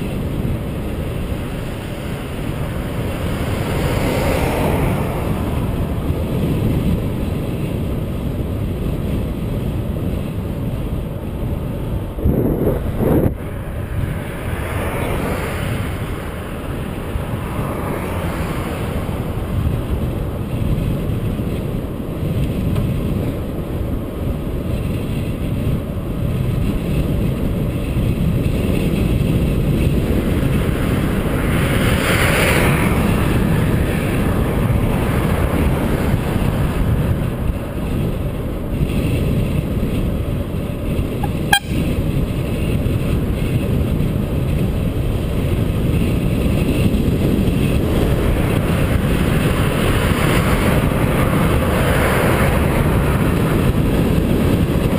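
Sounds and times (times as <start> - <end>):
car passing: 0.0 - 9.2, 11.2 - 22.2, 28.7 - 39.4, 43.4 - 54.9
wind buffeting microphone: 0.0 - 54.9.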